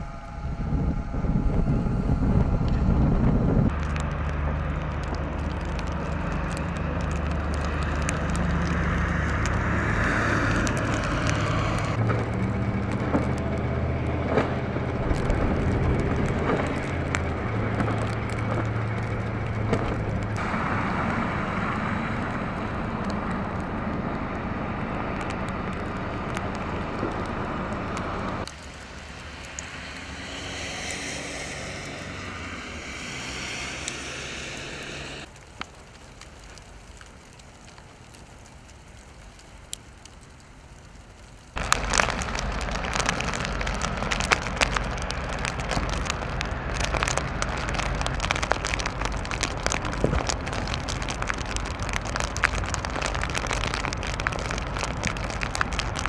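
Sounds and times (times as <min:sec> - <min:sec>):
low engine hum: 0:00.0 - 0:38.1, 0:39.3 - 0:56.0
steady hiss: 0:28.5 - 0:35.4.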